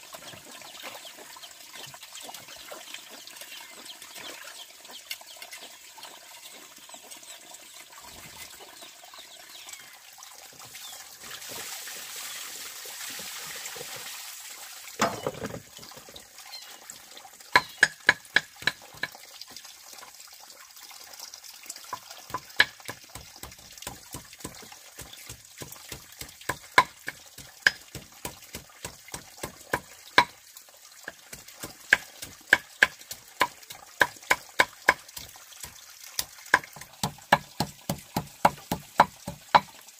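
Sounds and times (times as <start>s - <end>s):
water running: 0.0s - 20.3s, 21.0s - 39.9s
sharp knocks of food preparation: 17.6s - 19.2s, 22.3s - 30.3s, 36.5s - 39.7s.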